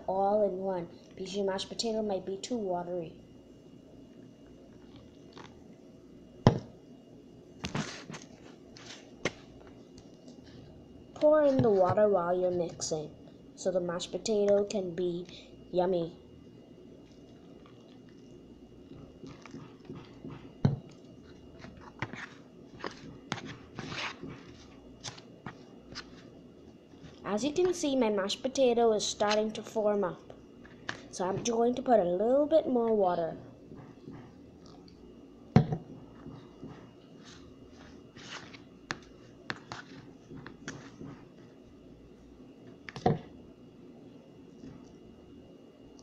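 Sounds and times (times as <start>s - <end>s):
spoon scraping mashed potato: 21.2s - 26.3s.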